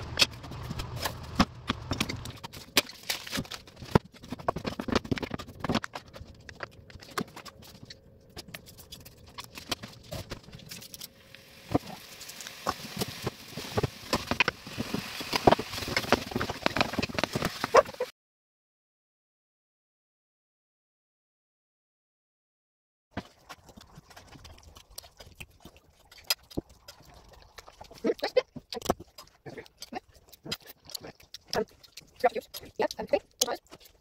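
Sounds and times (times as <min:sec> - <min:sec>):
scraping in a frying pan: 0:10.1 - 0:18.1
meat sizzling in a frying pan: 0:11.2 - 0:16.2.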